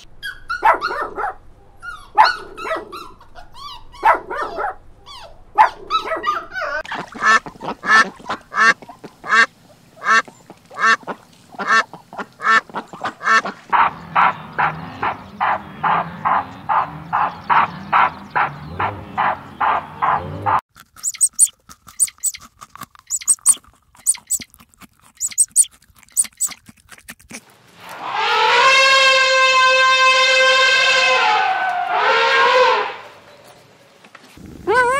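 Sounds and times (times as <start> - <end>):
quick high chirps: 21.0 - 22.5, 23.1 - 24.5, 25.2 - 26.6.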